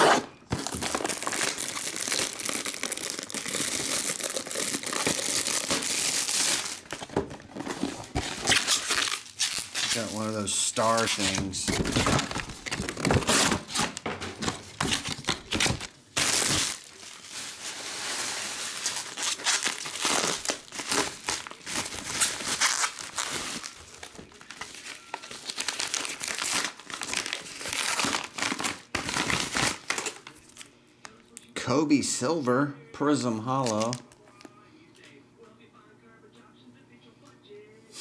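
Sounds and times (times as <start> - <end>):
bubble wrap crinkling: 0.0 - 30.7.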